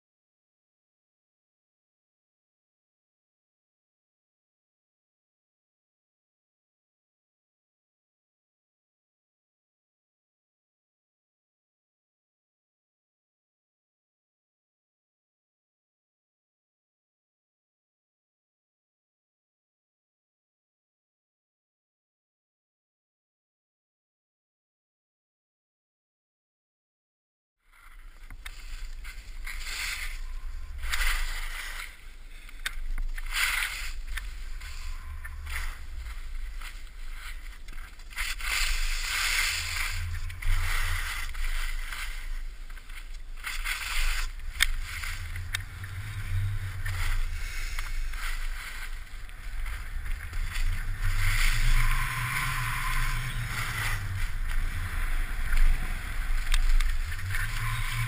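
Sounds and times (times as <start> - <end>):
skis scraping over snow: 27.7 - 58.0
wind rumbling on microphone: 27.7 - 58.0.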